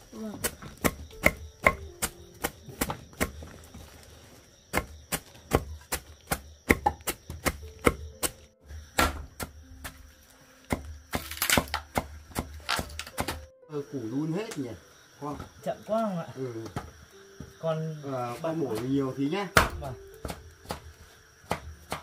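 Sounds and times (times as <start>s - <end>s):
machete chopping greens on wood: 0.2s - 3.7s, 4.7s - 13.5s, 19.6s - 22.0s.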